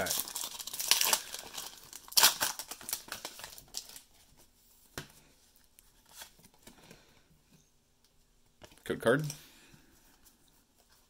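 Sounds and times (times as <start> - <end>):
foil wrapper crinkling: 0.0 - 4.1.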